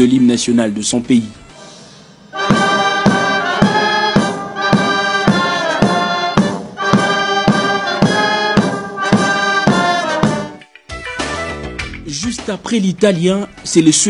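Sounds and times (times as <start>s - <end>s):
military brass band march: 2.3s - 10.6s.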